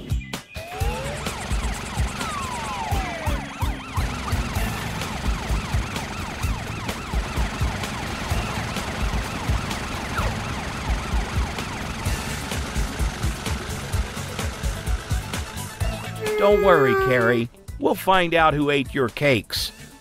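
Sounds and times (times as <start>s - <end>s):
cartoon siren warbling: 2.2s - 6.9s, 16.2s - 17.5s.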